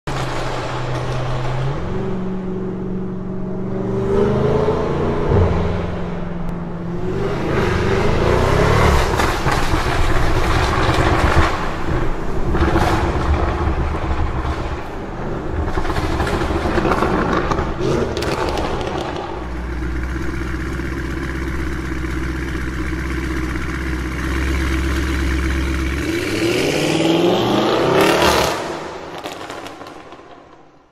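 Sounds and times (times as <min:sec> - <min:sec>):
car engine revving and accelerating: 0:01.4 - 0:13.8, 0:15.7 - 0:30.0.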